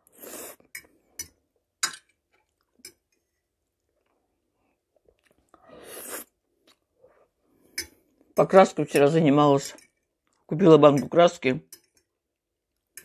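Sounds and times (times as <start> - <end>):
faint chewing: 2.3 - 8.3
noodle slurp: 5.5 - 6.4.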